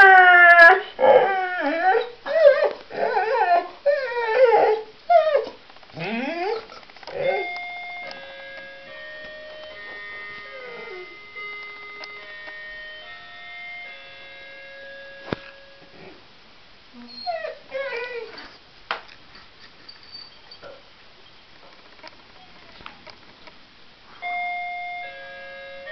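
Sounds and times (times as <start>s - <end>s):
dog howling: 0.0s - 7.6s, 10.5s - 11.2s
musical doorbell tune: 7.2s - 15.8s, 24.2s - 25.9s.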